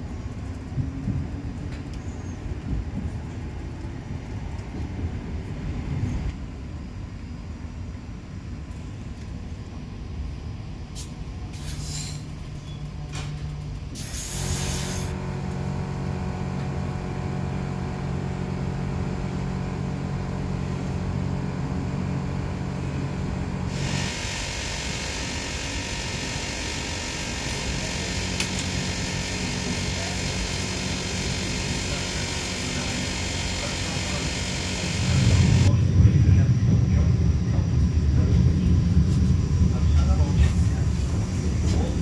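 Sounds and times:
electric train hum and rolling: 0:00.0 - 0:42.0
short hiss: 0:10.9 - 0:12.2, 0:14.0 - 0:15.1.

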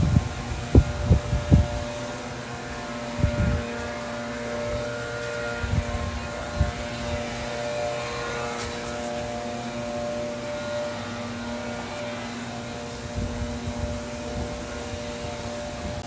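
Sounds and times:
strong wind blowing: 0:00.0 - 0:02.0, 0:03.2 - 0:03.7, 0:13.1 - 0:16.0
wind buffeting microphone: 0:00.0 - 0:02.2, 0:03.1 - 0:07.6, 0:13.0 - 0:16.0.

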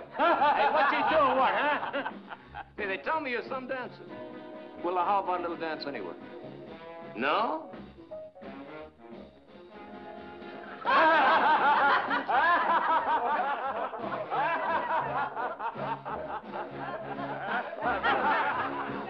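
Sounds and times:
men laughing loudly: 0:00.0 - 0:02.7, 0:10.8 - 0:19.0
background music with low notes: 0:00.0 - 0:19.0.

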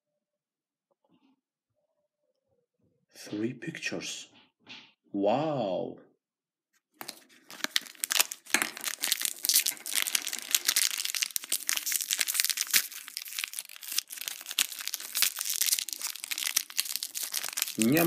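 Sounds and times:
foil wrapper crinkling and tearing: 0:07.0 - 0:18.0.

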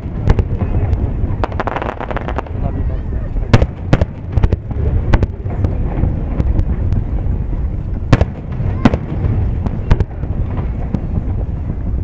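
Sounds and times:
firework shells bursting: 0:00.0 - 0:02.6
low rumble of booms: 0:00.0 - 0:12.0.

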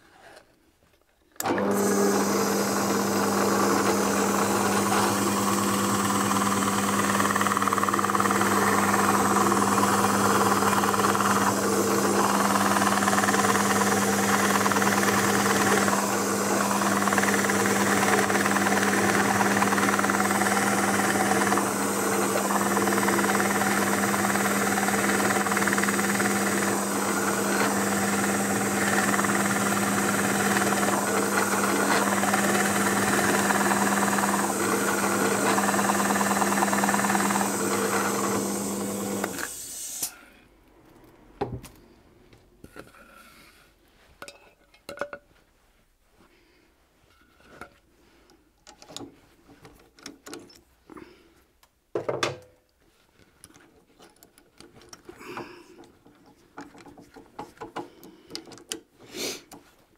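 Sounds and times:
electric drill boring into wood: 0:01.4 - 0:40.1.

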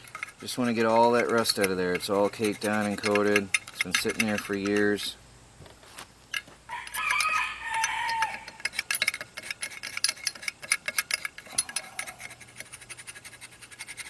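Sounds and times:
screwdriver scraping metal bowl: 0:00.0 - 0:05.2, 0:06.3 - 0:14.0
rooster crowing: 0:06.7 - 0:08.6.

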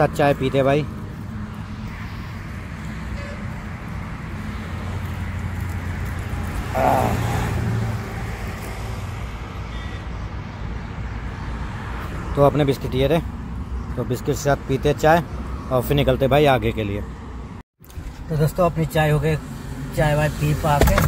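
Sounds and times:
louder vehicle passing: 0:00.0 - 0:15.8
highway traffic: 0:00.0 - 0:21.0.

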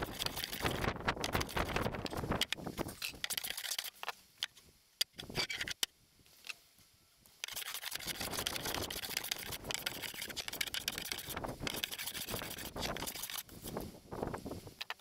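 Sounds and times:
hand plane rasping on wood: 0:07.5 - 0:13.4.

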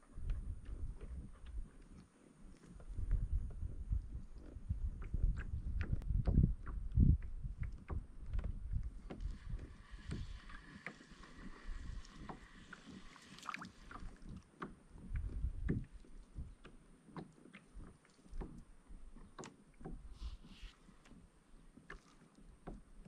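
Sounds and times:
soft water sounds: 0:00.0 - 0:23.0
low rumble: 0:02.8 - 0:10.5
knocks and clicks from kayak hull: 0:05.0 - 0:12.5, 0:14.2 - 0:20.1, 0:22.6 - 0:23.0.

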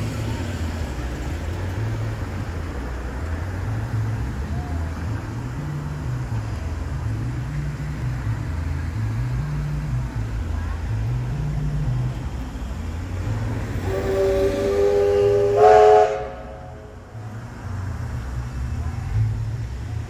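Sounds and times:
distant steam locomotive: 0:13.2 - 0:17.3.

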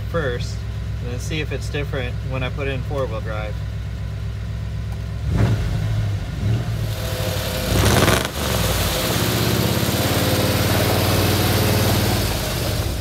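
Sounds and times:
engine revving through loud exhaust: 0:05.2 - 0:13.0.

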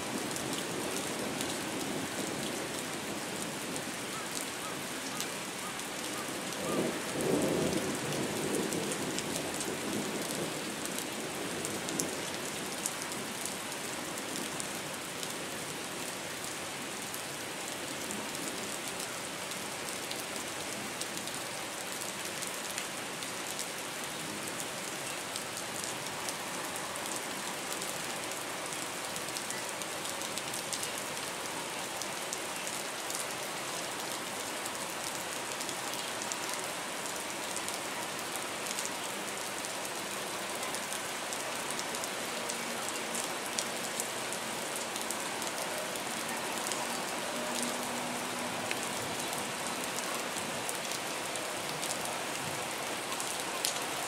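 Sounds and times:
steady rain: 0:00.0 - 0:54.0.

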